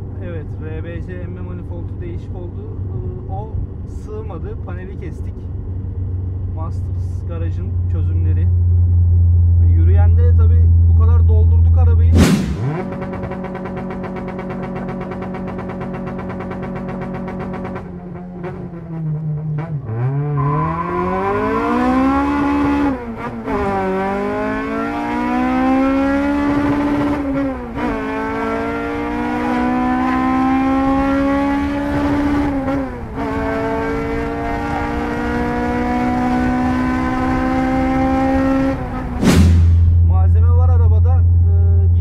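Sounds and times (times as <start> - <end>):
car engine accelerating through gears: 12.1 - 40.1.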